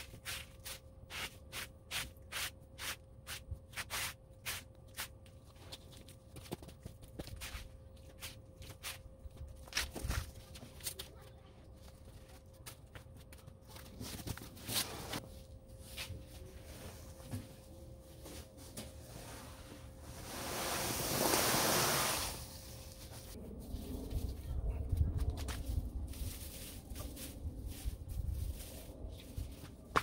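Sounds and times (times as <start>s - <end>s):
soil scraping on cardboard: 0.0s - 5.2s, 19.0s - 23.3s
soil sliding into a bag: 19.1s - 23.2s.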